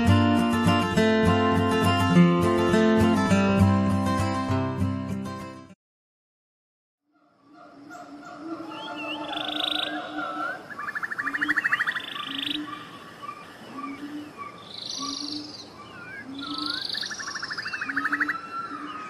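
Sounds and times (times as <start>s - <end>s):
rattling frog trills: 7.1s - 13.0s, 16.3s - 18.8s
bird chirps: 7.2s - 19.0s.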